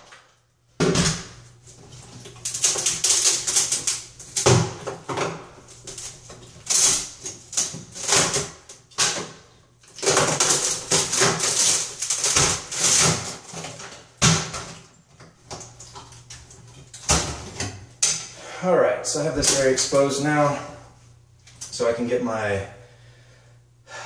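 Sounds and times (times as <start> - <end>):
fiberglass scraping and cracking: 1.7 - 4.8, 5.6 - 14.1.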